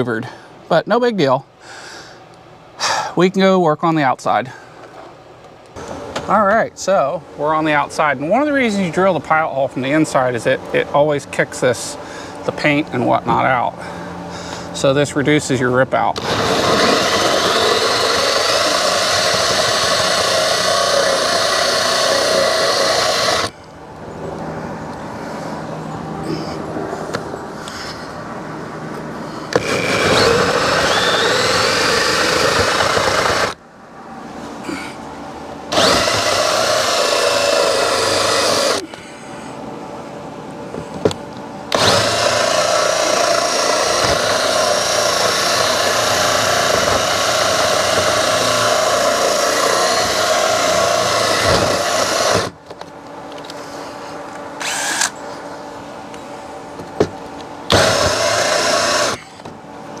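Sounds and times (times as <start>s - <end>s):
cordless drill whining: 16.2s - 23.6s, 29.5s - 33.6s, 35.7s - 38.8s, 41.7s - 52.5s, 54.6s - 55.2s, 57.7s - 59.4s.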